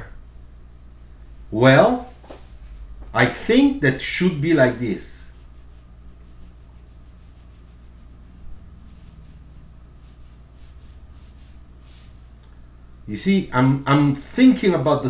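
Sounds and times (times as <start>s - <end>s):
faint low hum: 0.0s - 15.0s
pencil scratching on paper: 4.6s - 12.2s.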